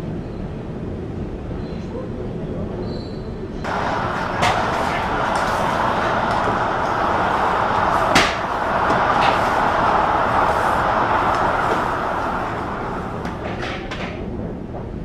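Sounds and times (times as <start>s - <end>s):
loading machinery running: 3.7s - 14.8s
sharp knocks: 7.7s - 9.9s.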